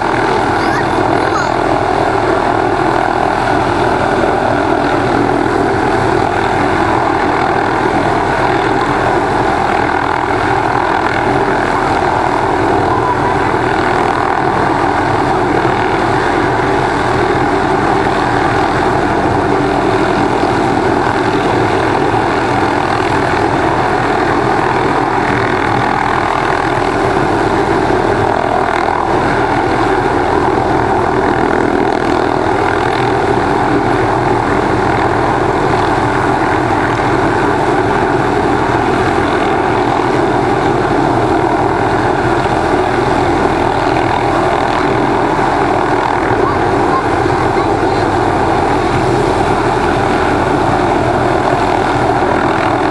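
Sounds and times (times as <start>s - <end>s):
helicopter hovering: 0.0s - 52.9s.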